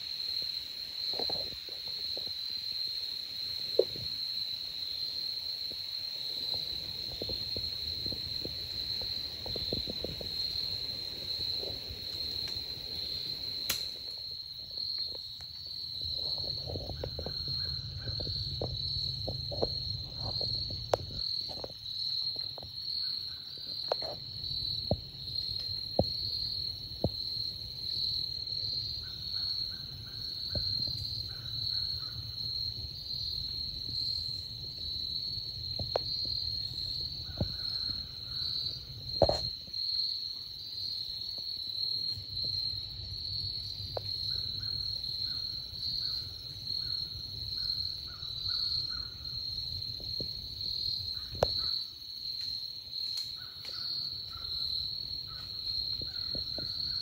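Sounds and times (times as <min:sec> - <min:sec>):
high-pitched insect chorus: 0:00.0 - 0:57.0
pulsing lower insect call: 0:00.0 - 0:57.0
sharp snaps: 0:13.6 - 0:14.2.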